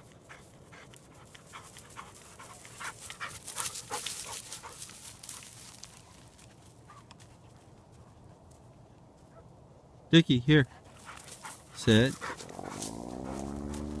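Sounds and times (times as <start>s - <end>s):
dog panting: 0.0s - 5.0s, 10.7s - 13.6s.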